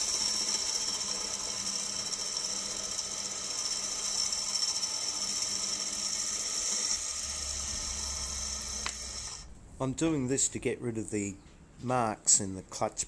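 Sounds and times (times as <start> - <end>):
grinding wheel hissing on metal: 0.0 - 9.5
motor hum: 0.0 - 9.7.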